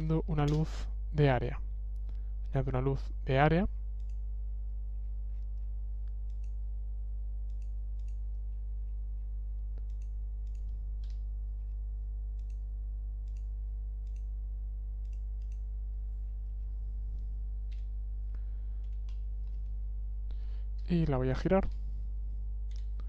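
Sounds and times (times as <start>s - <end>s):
steady low hum: 0.0s - 23.0s
computer mouse clicks: 4.0s - 4.2s, 5.3s - 6.6s, 7.4s - 8.3s, 9.8s - 11.2s, 12.4s - 12.6s, 13.2s - 14.3s, 15.0s - 15.7s, 18.8s - 19.7s, 22.7s - 23.0s.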